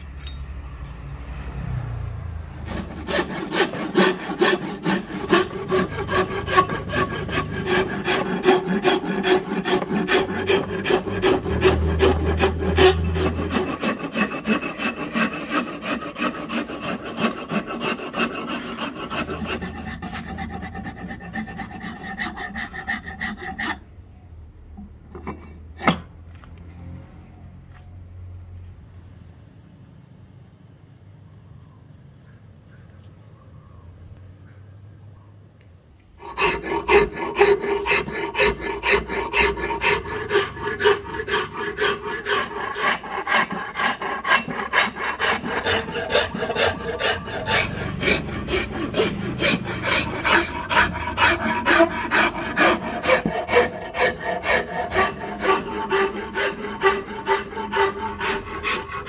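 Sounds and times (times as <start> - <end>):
rasp filing wood: 2.5 - 23.9, 36.2 - 59.0.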